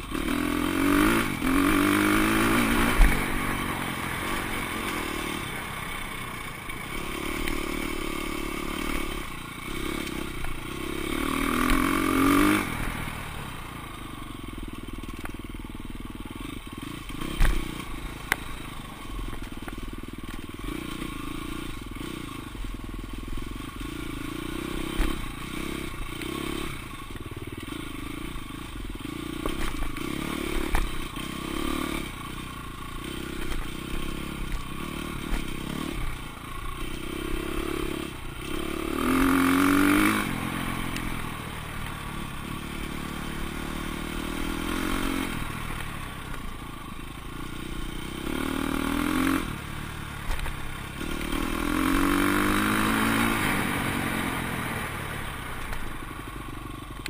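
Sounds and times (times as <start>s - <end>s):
dirt bike engine revving: 0.0s - 14.2s, 16.2s - 22.7s, 23.3s - 56.0s
bike clattering over rough trail: 16.8s - 21.0s, 29.2s - 31.4s, 33.0s - 36.1s, 50.2s - 53.7s.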